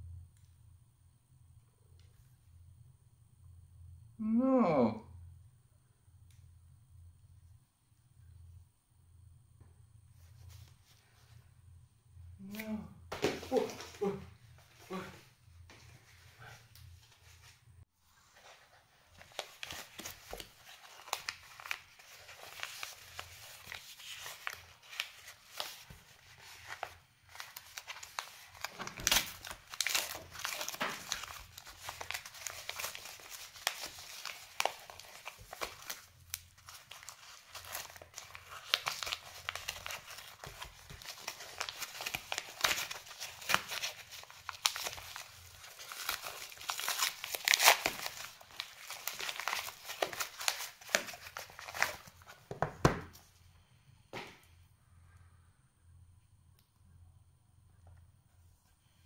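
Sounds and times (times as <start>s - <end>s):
envelope crinkling and tearing: 18.4s - 52.4s.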